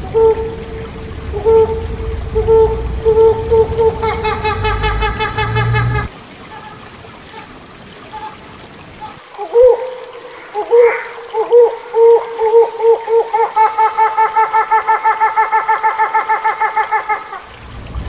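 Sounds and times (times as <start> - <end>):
hornbill hooting: 0.0 - 6.8
faint hiss: 0.0 - 13.5.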